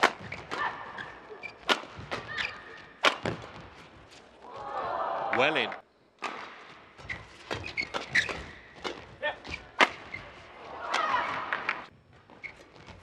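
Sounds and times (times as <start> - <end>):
racket hitting shuttlecock: 0.0 - 3.6, 6.2 - 10.2
court shoes squeaking: 0.0 - 4.4, 6.2 - 13.0.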